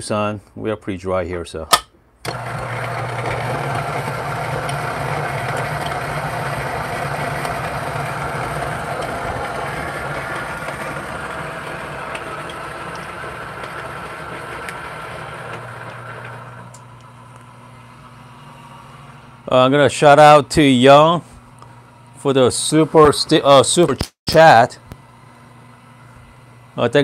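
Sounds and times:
coffee grinder grinding beans: 2.3s - 23.8s.

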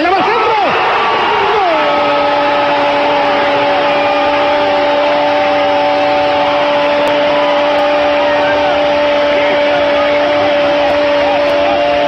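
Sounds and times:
commentator shouting goal: 0.0s - 3.8s, 8.0s - 12.0s
stadium crowd noise: 0.0s - 12.0s.

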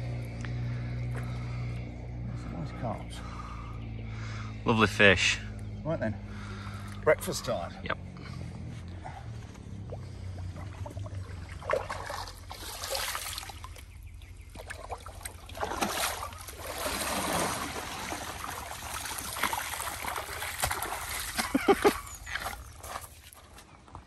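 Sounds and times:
water splashing and sloshing: 8.2s - 24.0s.

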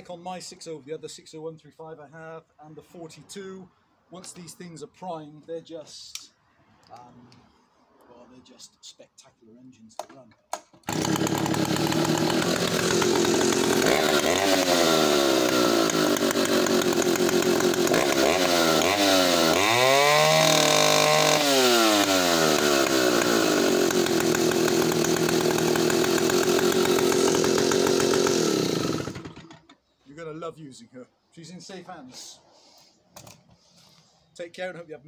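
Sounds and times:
chainsaw idling and revving: 10.8s - 29.7s.

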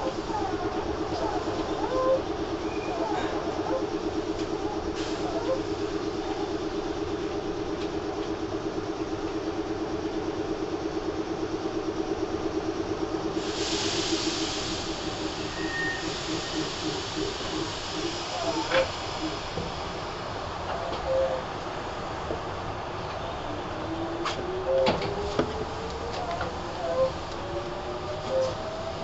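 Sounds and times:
train equipment pulsing drone: 0.0s - 29.0s
air hiss: 13.3s - 20.4s.

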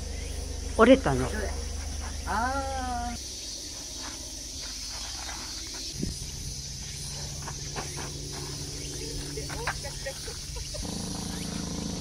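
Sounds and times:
cicadas droning: 0.0s - 12.0s
low steady hum: 0.0s - 12.0s
footsteps on dirt: 1.4s - 2.4s, 3.5s - 11.4s.

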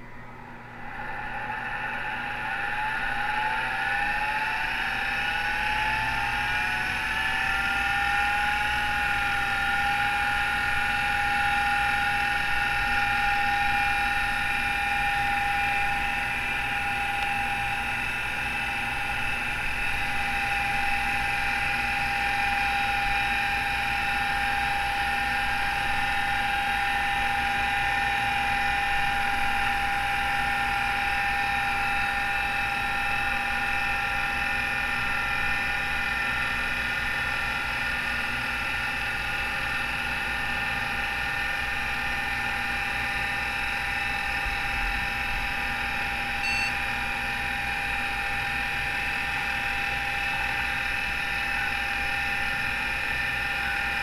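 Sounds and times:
low hum: 0.0s - 5.5s
hard drive whine: 0.0s - 54.0s.

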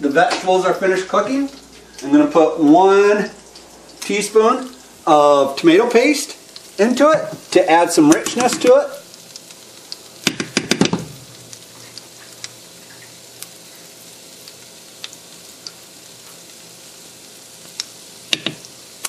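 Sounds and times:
frying sizzle: 0.0s - 19.0s
spoon and spatula clacking on skillet: 10.2s - 11.3s, 17.8s - 18.7s.

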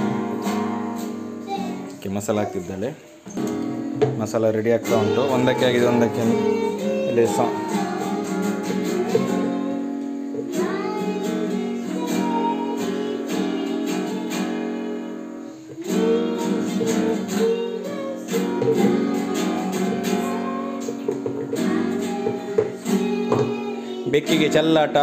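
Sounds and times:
acoustic guitar strumming: 0.0s - 2.6s, 3.2s - 25.0s
woman singing: 4.8s - 24.6s.

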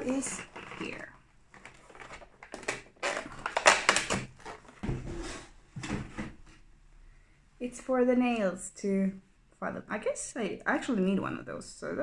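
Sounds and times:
cardboard crackling and tearing: 0.3s - 4.8s.

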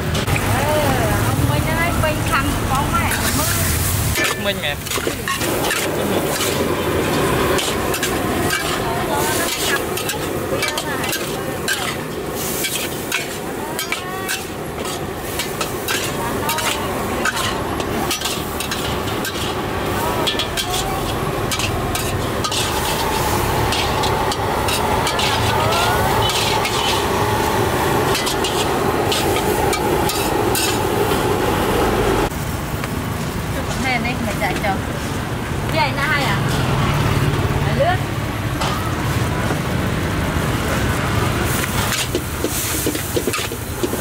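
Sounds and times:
food sizzling in hot oil: 0.0s - 44.0s
metal ladle scraping wok: 2.1s - 31.5s, 41.4s - 44.0s.

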